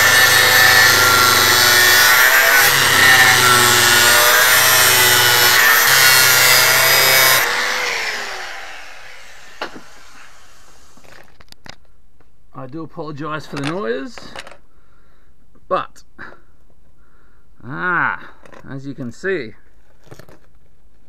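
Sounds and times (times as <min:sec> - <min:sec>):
grinder spinning down: 0:00.0 - 0:11.0
angle grinder grinding metal: 0:00.0 - 0:11.1.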